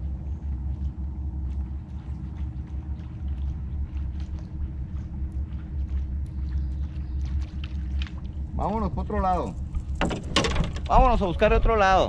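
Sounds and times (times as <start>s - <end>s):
boat motor running: 0.0s - 12.0s.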